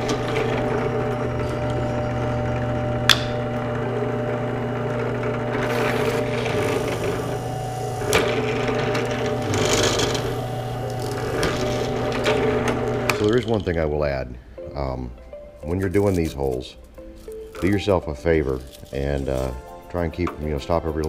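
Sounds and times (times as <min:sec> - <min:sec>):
drill press motor hum: 0:00.0 - 0:13.7
drill bit rasping through pipe: 0:00.0 - 0:13.8.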